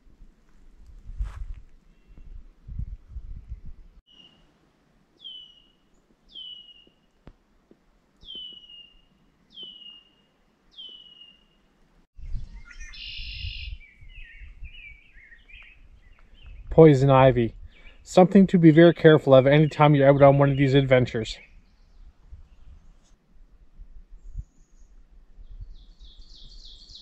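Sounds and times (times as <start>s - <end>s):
songbirds calling: 4.1s - 4.5s, 5.1s - 7.3s, 8.2s - 23.0s, 24.2s - 27.0s
buzzy bird trill: 8.2s - 11.6s, 12.2s - 15.8s
songbird whistling descending note: 12.2s - 15.4s.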